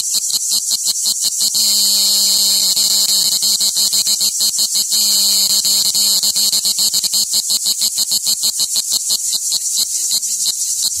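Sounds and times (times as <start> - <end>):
cicada buzzing pulses: 0.0 - 11.0.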